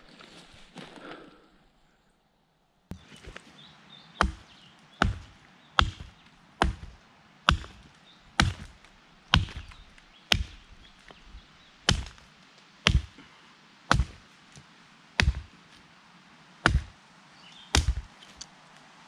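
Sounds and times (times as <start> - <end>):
hatchet chopping wood: 4.2 - 10.7, 11.9 - 13.2, 13.9 - 14.2, 15.2 - 15.5, 16.6 - 17.0, 17.7 - 18.5.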